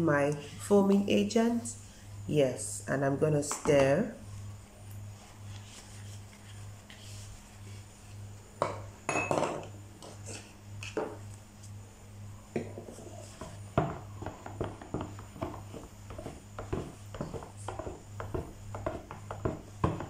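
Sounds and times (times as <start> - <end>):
plastic kitchenware knocking on wood: 13.8 - 20.0.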